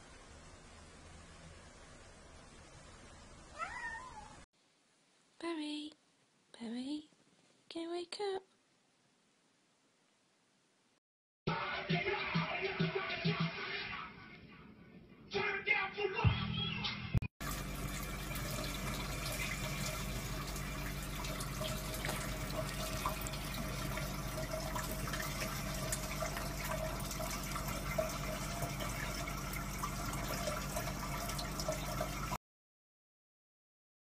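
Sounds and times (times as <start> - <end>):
water running from faucet: 17.4 - 32.4.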